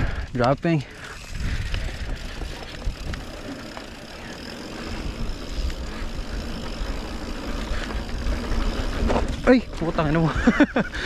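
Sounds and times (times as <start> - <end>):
bike clicks and rattles: 0.0 - 11.0
bike tyres rolling over dirt: 0.0 - 11.0
wind on microphone: 1.2 - 3.6.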